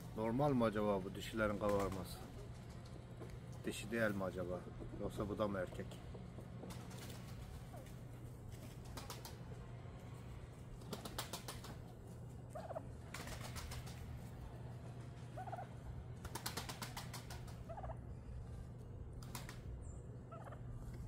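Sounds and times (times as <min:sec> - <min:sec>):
turkeys gobbling: 0:06.3 - 0:08.2, 0:12.4 - 0:14.0, 0:15.2 - 0:18.2, 0:20.2 - 0:21.0.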